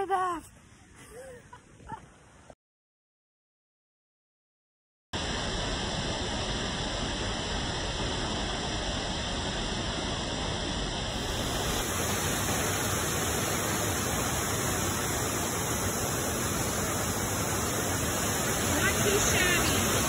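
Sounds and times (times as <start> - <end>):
creek and waterfall rushing: 11.1 - 20.0.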